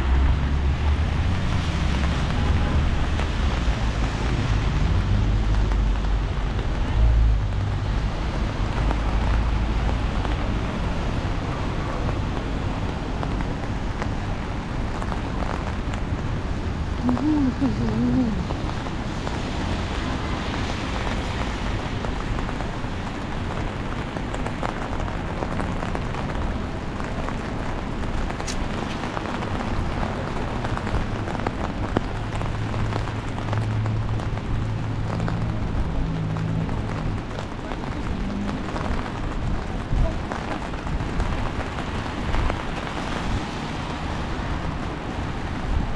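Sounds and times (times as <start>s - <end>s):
car tyres on wet streets: 0.0s - 45.9s
rain hiss: 17.0s - 45.9s.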